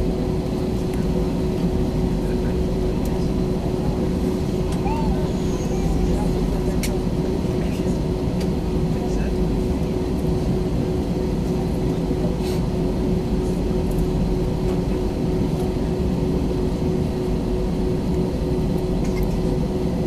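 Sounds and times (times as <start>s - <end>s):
aircraft cabin engine drone: 0.0s - 20.0s.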